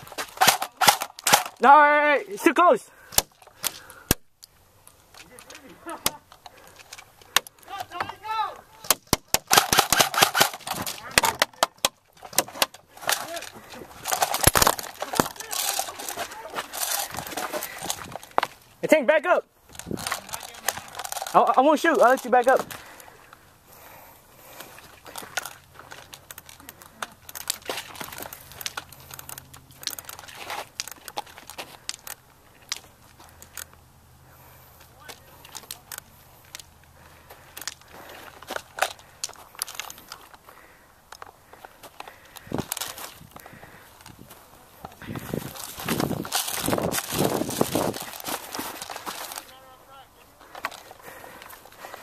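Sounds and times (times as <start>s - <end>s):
pellets striking dirt: 0.0s - 2.0s, 7.3s - 18.6s
airsoft guns firing: 0.4s - 1.7s, 8.8s - 11.8s.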